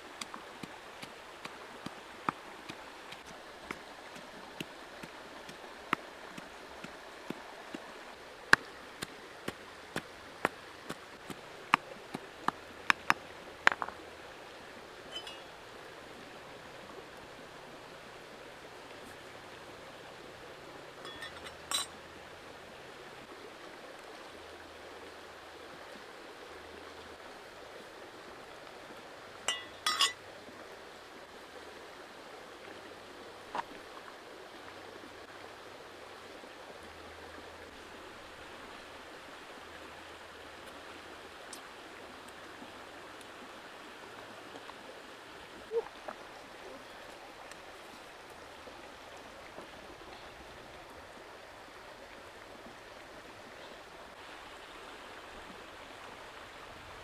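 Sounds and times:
flowing stream: 0.0 - 57.0
sharp clinks: 15.1 - 15.5, 21.1 - 21.9, 29.5 - 30.2.

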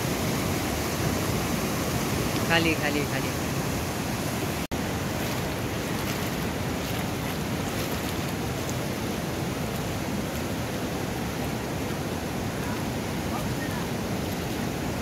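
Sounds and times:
fast-flowing river rushing: 0.0 - 15.0.

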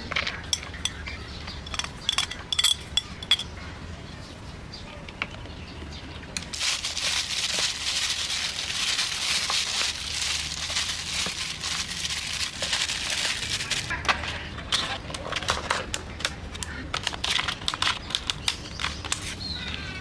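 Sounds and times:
hand mixing vegetables in plastic tub: 6.5 - 13.9.

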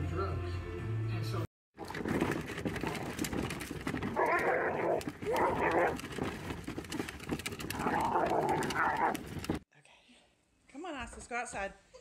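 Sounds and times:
bin wheels rattling over gravel: 1.8 - 9.6
dog growling and barking: 1.8 - 9.6.

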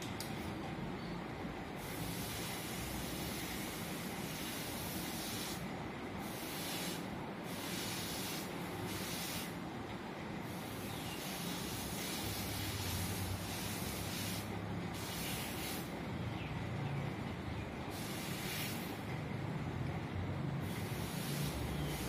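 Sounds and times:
clothes iron hissing: 1.8 - 5.6, 6.2 - 9.6, 10.5 - 15.9, 17.9 - 19.0, 20.6 - 22.0.

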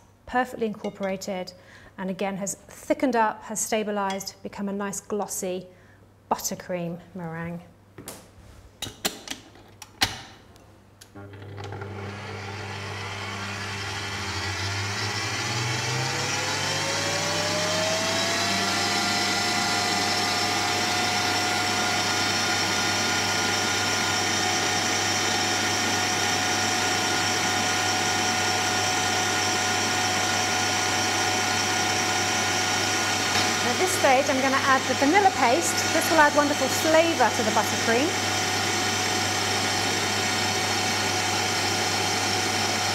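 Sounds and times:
stand mixer motor whine: 11.2 - 42.9.

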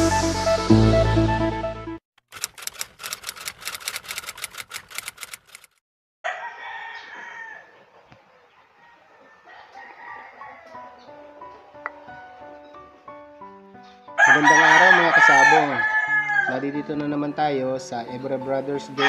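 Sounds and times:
rapid typewriter-like clicking: 2.2 - 5.8
roosters crowing: 6.2 - 11.2, 14.2 - 17.0.

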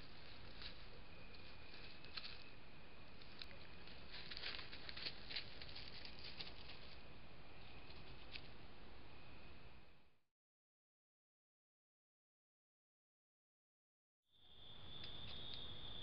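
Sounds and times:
animal rustling through dry leaves: 3.2 - 7.0.

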